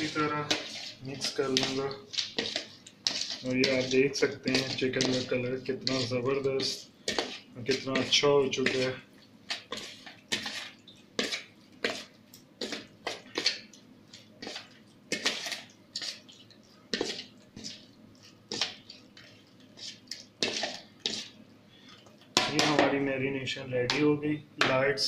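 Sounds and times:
metal spoon scraping plastic bowl: 0.0s - 13.6s, 14.4s - 16.2s, 16.9s - 21.4s
wet squelches: 0.0s - 22.3s.

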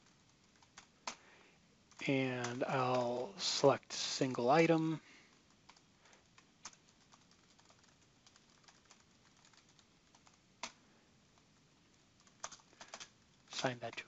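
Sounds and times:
typing on computer keyboard: 0.0s - 1.2s, 5.3s - 10.8s, 11.9s - 13.2s.

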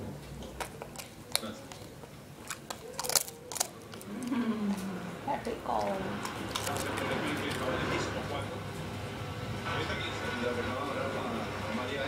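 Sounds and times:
dog crunching a biscuit: 0.4s - 4.8s, 5.8s - 8.0s.

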